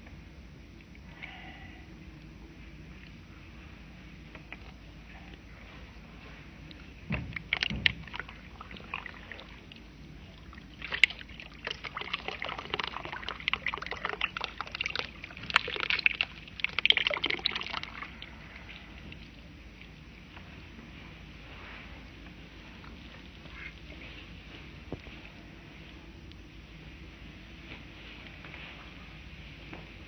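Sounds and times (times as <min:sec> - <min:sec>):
water pouring into mud: 0:10.8 - 0:18.2.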